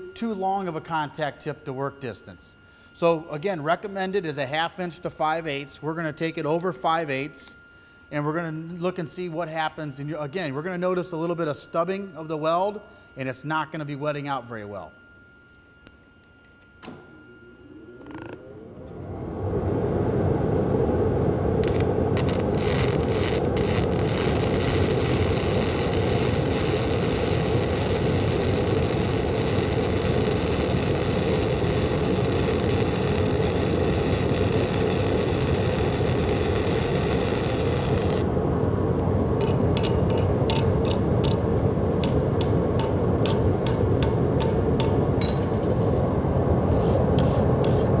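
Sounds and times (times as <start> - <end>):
welding arc crackling hiss: 21.5 - 38.3.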